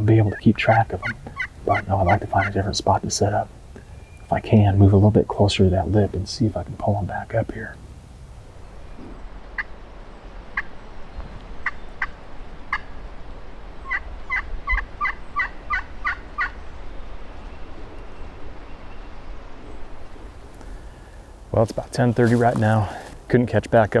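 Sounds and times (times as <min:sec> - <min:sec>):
turkey yelps: 0:00.2 - 0:02.6, 0:13.8 - 0:16.6.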